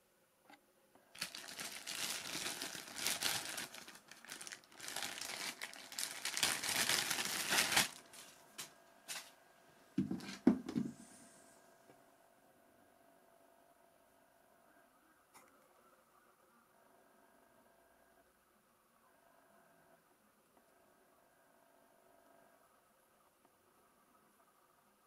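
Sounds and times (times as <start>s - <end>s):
plastic bag crinkling: 1.1s - 9.4s
soft knocks: 10.0s - 11.0s.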